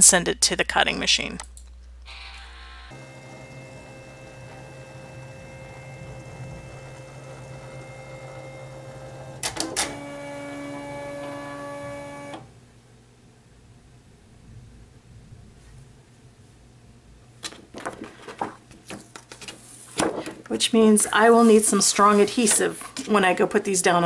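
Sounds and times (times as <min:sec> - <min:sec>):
cutting machine motor hum: 0:02.9 - 0:12.5.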